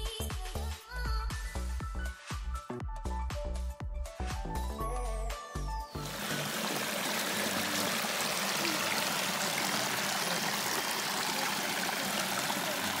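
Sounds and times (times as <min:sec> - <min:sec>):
stream running over stones: 0:06.0 - 0:13.0.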